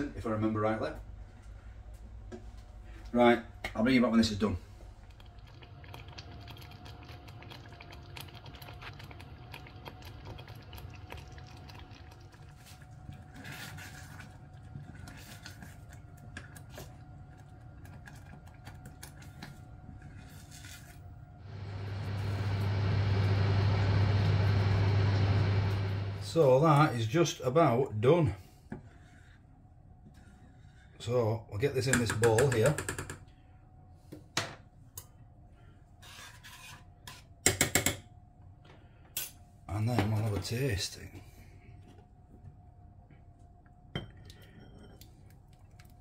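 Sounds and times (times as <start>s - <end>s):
faint steady whine: 12.7s - 31.8s.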